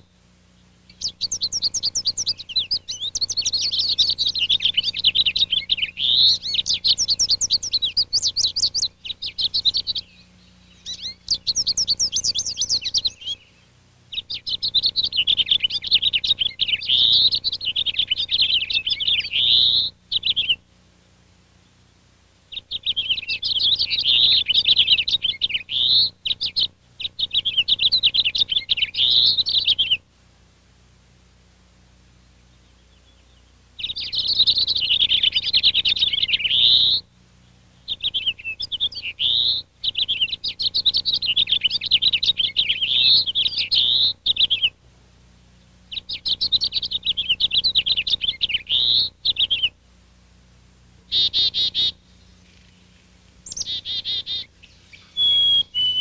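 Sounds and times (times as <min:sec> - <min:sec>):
finch warbling song: 0:51.1 - 0:56.0.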